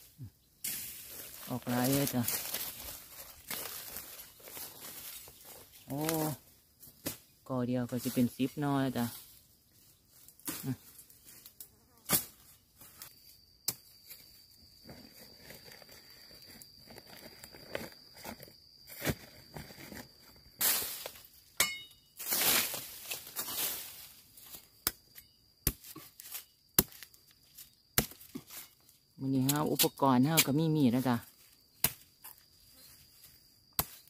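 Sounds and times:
high insect drone: 0:00.0 - 0:34.0
footsteps in dry leaf litter: 0:00.7 - 0:06.4, 0:22.2 - 0:24.5
dry bamboo snapping: 0:01.8 - 0:04.2, 0:05.9 - 0:06.3.

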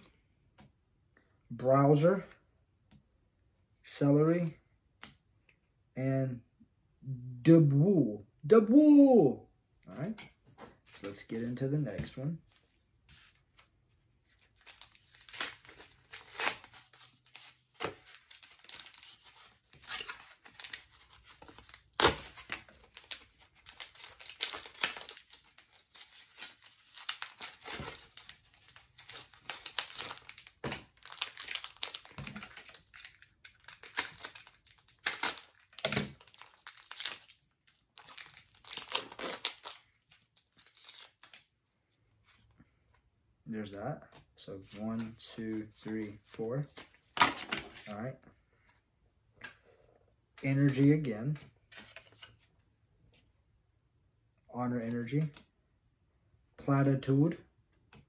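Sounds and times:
foil wrapper tearing and crinkling: 0:14.6 - 0:41.5.

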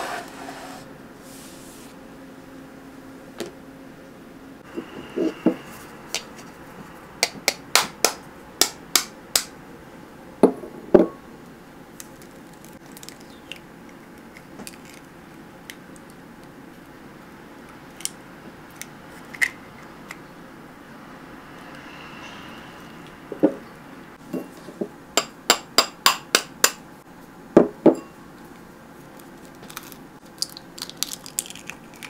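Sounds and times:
egg cracking on glass bowl: 0:29.6 - 0:32.0.

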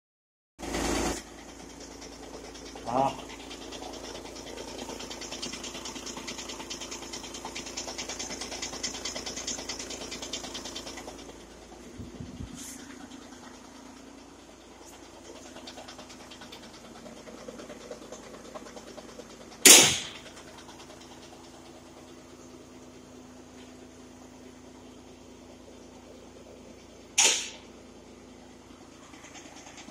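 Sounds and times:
car engine idling with rattle: 0:00.6 - 0:29.9
sharp loud knock: 0:27.2 - 0:27.6.

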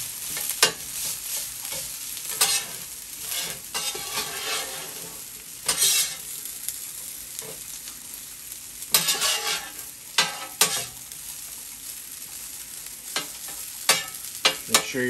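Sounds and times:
rice sizzling on griddle: 0:00.0 - 0:15.0
metal spatulas scraping steel: 0:01.7 - 0:05.1, 0:05.7 - 0:06.2, 0:09.0 - 0:10.9.

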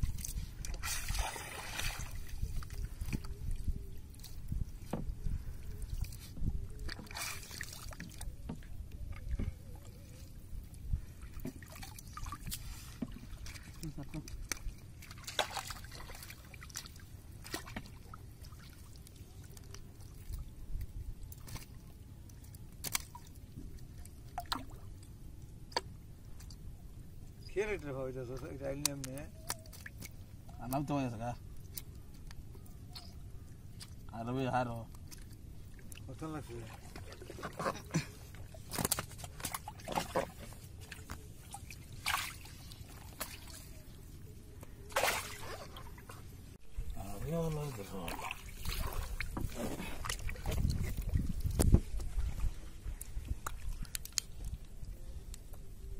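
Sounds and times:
water dripping and splashing: 0:00.0 - 0:04.9, 0:05.7 - 0:09.5, 0:11.0 - 0:26.6, 0:28.4 - 0:34.2, 0:34.8 - 0:44.0, 0:44.9 - 0:46.2, 0:46.8 - 0:55.0
fish splashing: 0:00.7 - 0:03.4, 0:38.5 - 0:43.9, 0:44.8 - 0:46.2, 0:47.8 - 0:51.2.

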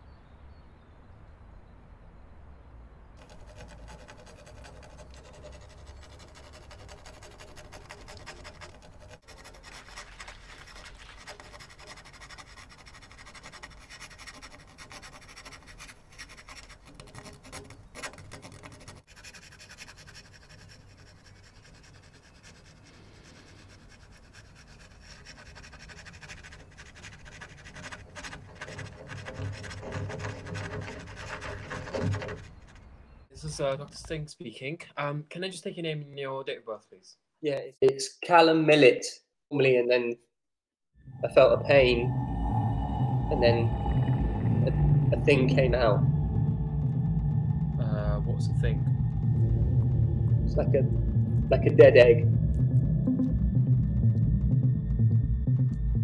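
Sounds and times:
scratchy crackling noise: 0:03.2 - 0:34.1, 0:41.2 - 0:54.3.

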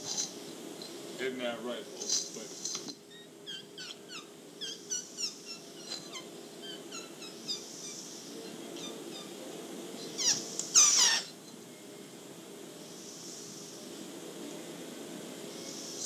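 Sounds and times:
tape hum and hiss: 0:00.0 - 0:16.0
infant squeaking and squealing: 0:03.1 - 0:08.0, 0:10.2 - 0:11.3.

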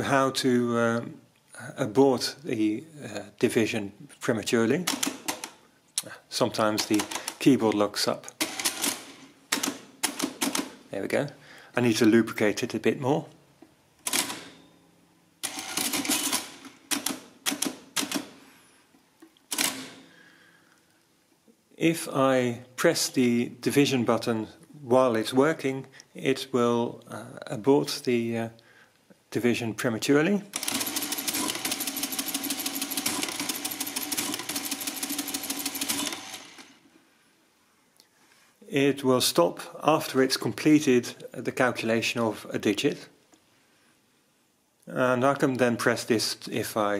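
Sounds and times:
calculator mechanism running: 0:06.8 - 0:07.4, 0:08.4 - 0:10.4, 0:15.4 - 0:18.3, 0:30.6 - 0:36.8.

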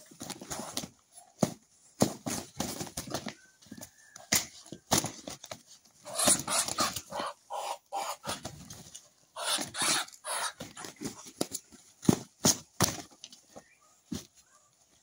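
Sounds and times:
birds scuffling: 0:00.0 - 0:15.0
wings beating: 0:06.0 - 0:08.8.

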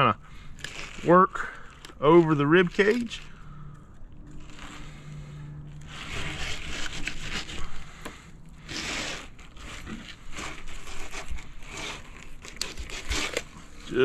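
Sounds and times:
knife scraping over fish bones: 0:04.3 - 0:14.0.

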